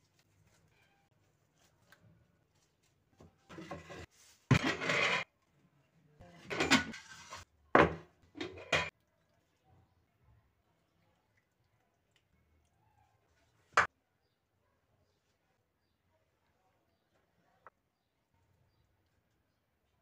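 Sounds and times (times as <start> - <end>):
ladle scraping metal pot: 3.5 - 5.3, 6.4 - 8.9.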